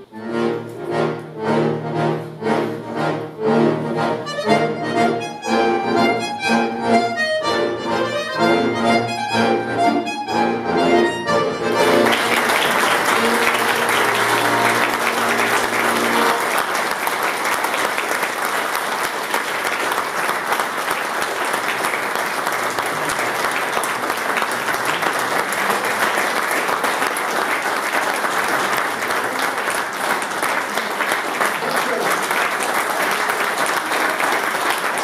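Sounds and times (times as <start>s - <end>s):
accordion chord: 0.0s - 16.9s
audience applauding: 11.7s - 35.0s.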